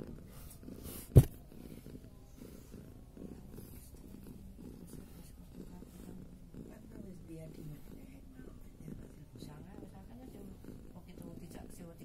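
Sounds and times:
cat purring: 0.0 - 12.0
sharp knock: 1.2 - 1.4.

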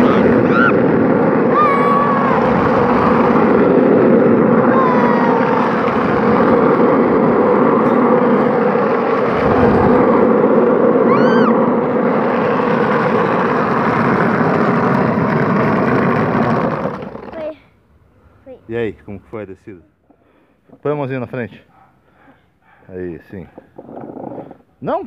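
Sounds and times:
high cry: 0.0 - 3.0, 4.6 - 6.0, 11.0 - 11.7
cart wheels rolling on asphalt: 0.0 - 17.7, 23.3 - 25.0.

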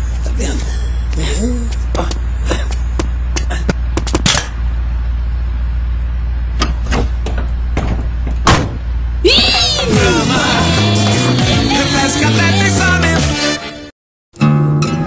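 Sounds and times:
steady low hum: 0.0 - 11.1.

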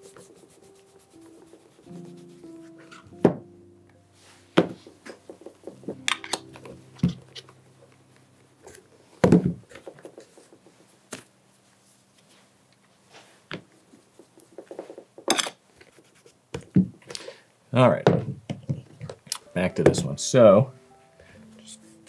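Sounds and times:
cloth rubbing on leather: 0.0 - 3.0.

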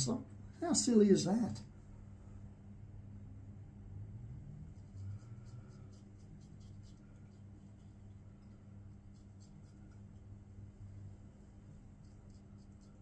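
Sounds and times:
razor scraping stubble: 4.7 - 10.2, 11.9 - 13.0.

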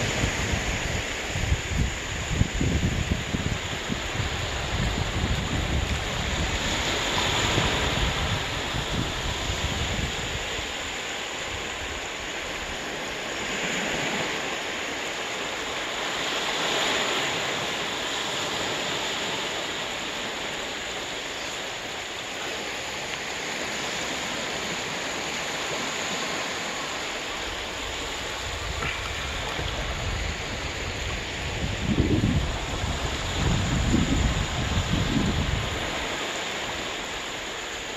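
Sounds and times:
waves washing up beach: 0.0 - 37.9
low rumbling gusts: 26.8 - 36.2.

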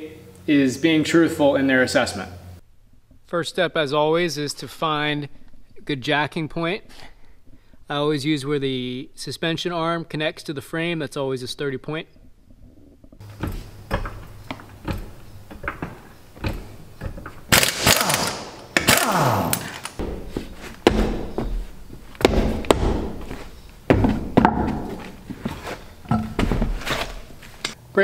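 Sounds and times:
light clicks and knocks: 13.0 - 17.5
pneumatic impact wrench hammering: 13.2 - 23.2.

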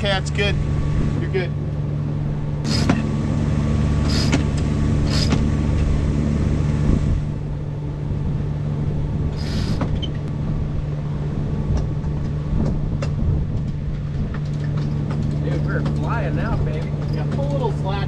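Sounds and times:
boat engine droning: 0.0 - 18.0
winch ratcheting: 2.6 - 3.1, 13.6 - 18.0.

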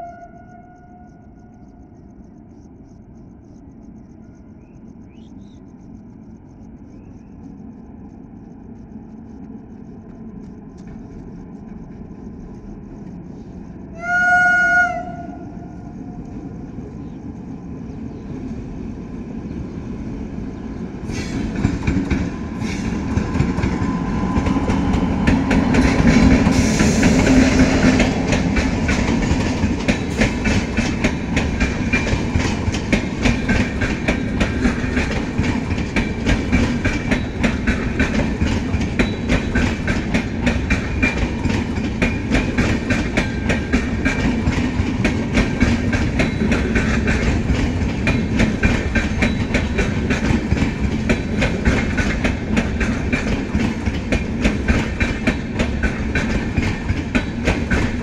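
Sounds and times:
train passing: 0.0 - 58.0
wheels clacking over rail joints: 21.0 - 58.0.

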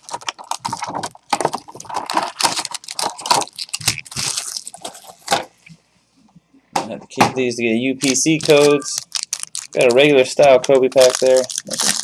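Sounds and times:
packaging crinkling and tearing: 0.0 - 5.3, 8.0 - 12.0.

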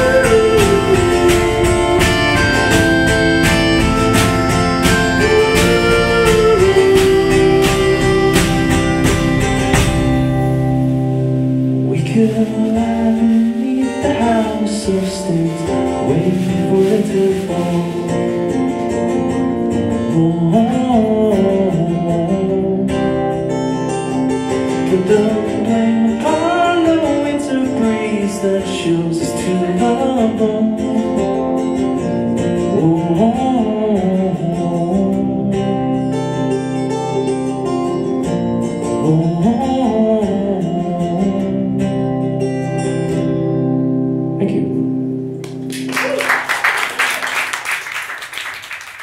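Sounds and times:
person singing wordless melody: 0.0 - 3.1, 4.7 - 8.7, 11.8 - 18.6, 19.9 - 23.3, 24.7 - 31.2, 32.7 - 36.0, 38.9 - 42.2
drums: 0.0 - 22.2
acoustic guitar strumming: 0.0 - 49.0.

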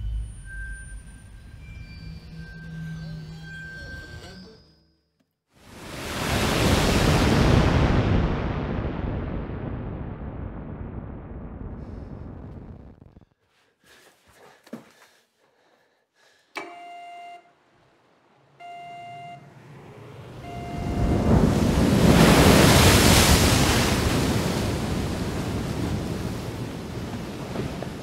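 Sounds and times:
sea surf: 5.6 - 9.1, 17.6 - 28.0
click: 16.5 - 17.0
electronic ringing tone: 16.6 - 17.5, 18.6 - 19.6, 20.4 - 21.3
wind: 17.5 - 28.0.

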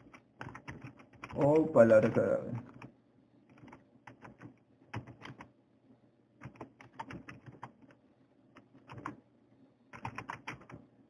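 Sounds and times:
typing on computer keyboard: 0.0 - 2.9, 3.5 - 5.5, 6.4 - 8.0, 8.6 - 9.2, 9.9 - 10.8.

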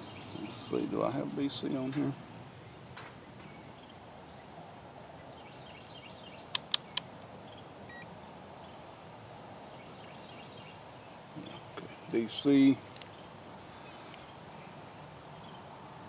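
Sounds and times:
selector dial clicks: 6.6 - 7.1.

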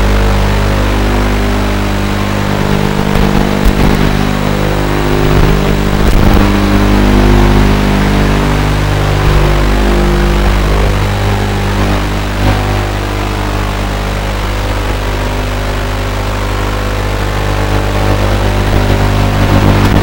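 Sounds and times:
drone motors and propellers: 0.0 - 20.0
short crackles: 2.3 - 6.8.

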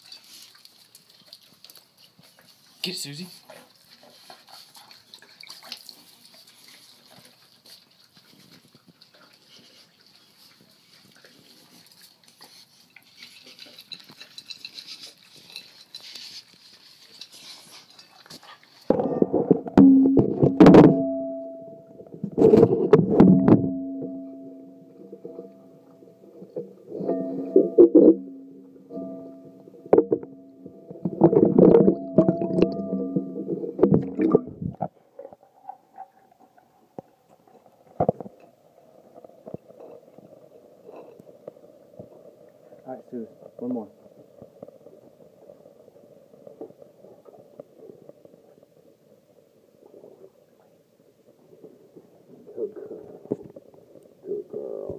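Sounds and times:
dog eating from a bowl: 0.0 - 49.5
faint steady low tones: 18.9 - 34.9.

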